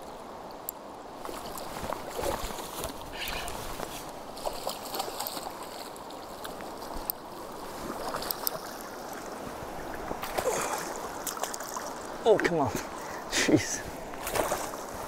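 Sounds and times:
river water running: 0:00.0 - 0:15.0
small splashes and knocks: 0:01.2 - 0:09.2, 0:09.8 - 0:12.9, 0:14.2 - 0:15.0
fish splashing: 0:10.1 - 0:12.1.

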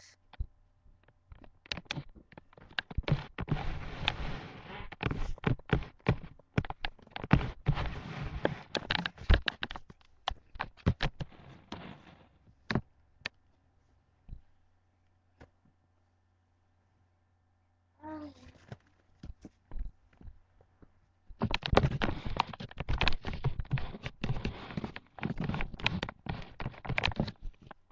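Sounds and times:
rustling on a couch: 0:02.9 - 0:09.8.

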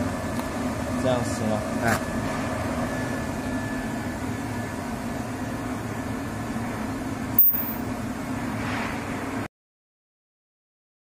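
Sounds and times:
low machine hum: 0:02.9 - 0:08.4
sharp click: 0:07.4 - 0:07.8.

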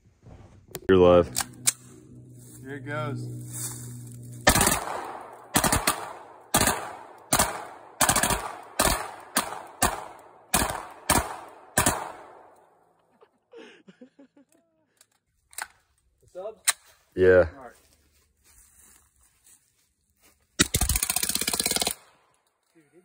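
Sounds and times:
pistol shots with echo: 0:04.5 - 0:12.5.

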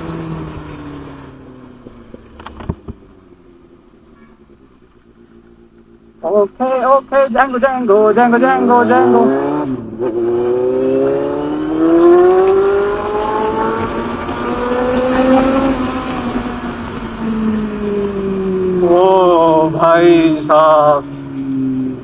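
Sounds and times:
motorcycle engine accelerating: 0:00.0 - 0:22.0
man calling out: 0:06.2 - 0:09.5, 0:18.8 - 0:21.1.

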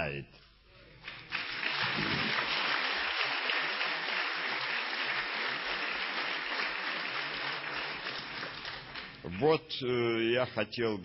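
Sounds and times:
audience applauding: 0:01.0 - 0:09.2.

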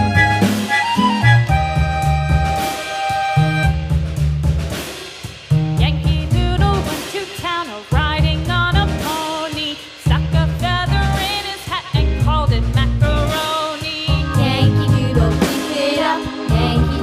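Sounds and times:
upbeat background music: 0:00.0 - 0:03.8, 0:12.0 - 0:17.0.

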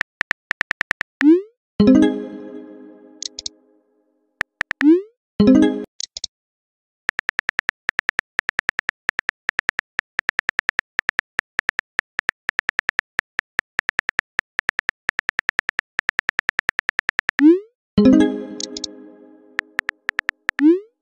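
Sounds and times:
phone keyboard typing clicks: 0:03.2 - 0:03.5, 0:18.6 - 0:18.9.

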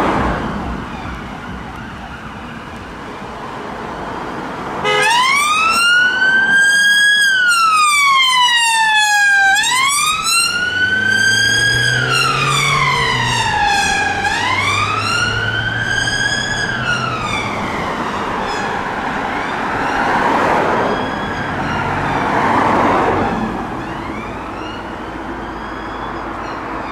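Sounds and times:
police siren wailing: 0:00.0 - 0:03.6, 0:04.8 - 0:26.9
road noise: 0:00.0 - 0:26.9
van engine pulling away: 0:09.9 - 0:25.7.

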